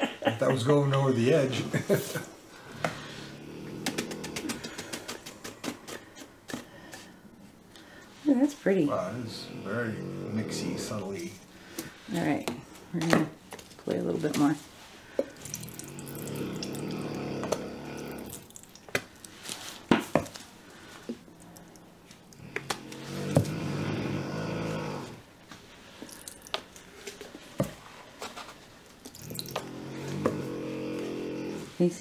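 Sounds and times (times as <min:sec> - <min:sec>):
paint sputtering from squeeze bottles: 0:03.8 - 0:06.6.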